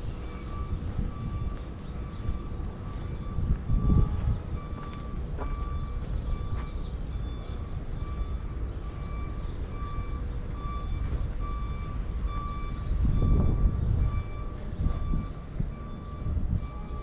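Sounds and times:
diesel machinery rumble: 0.0 - 17.0
reversing alarm beeping: 0.0 - 17.0.

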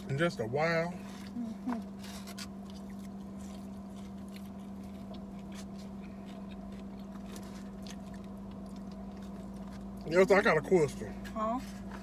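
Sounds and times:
car cabin hum: 0.0 - 12.0
person chewing: 1.0 - 10.2.

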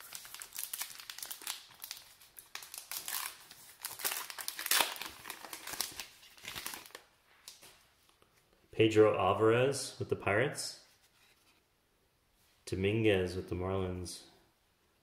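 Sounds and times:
card pack wrapper tearing: 0.0 - 7.0.

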